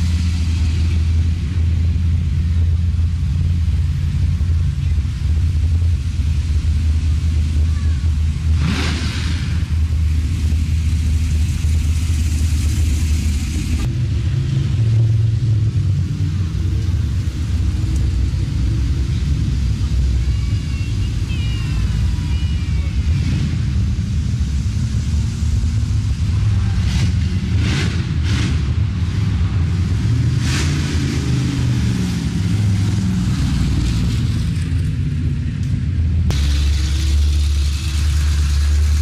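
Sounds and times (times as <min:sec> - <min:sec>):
car engines rumbling low: 0:00.0 - 0:39.0.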